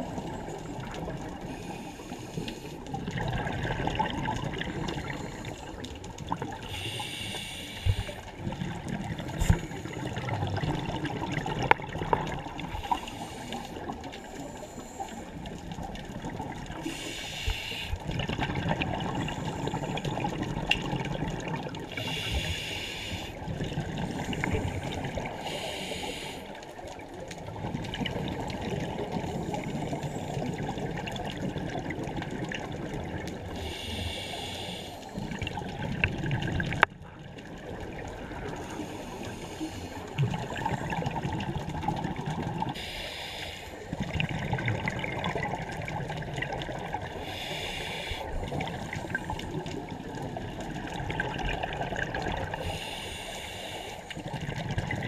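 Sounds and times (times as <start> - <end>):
bubbling gurgling exhaust: 2.8 - 6.7, 43.9 - 52.8
scuba regulator hissing inhales: 6.6 - 8.3, 12.8 - 15.4, 16.8 - 18.1, 21.9 - 23.4, 24.2 - 26.6, 33.6 - 35.4, 38.6 - 40.1, 42.7 - 43.9, 47.2 - 49.4, 52.6 - 54.2.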